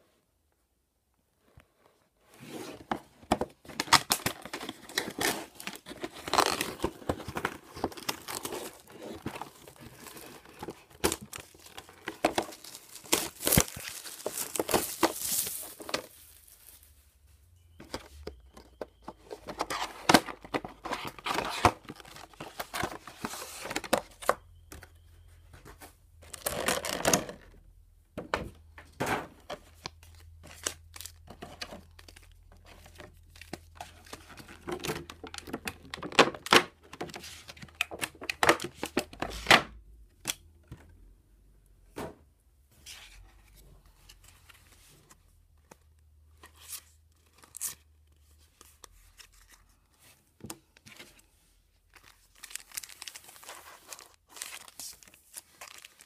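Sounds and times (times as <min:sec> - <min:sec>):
packaging tearing and crinkling: 0:03.8 - 0:16.8, 0:52.1 - 0:56.0.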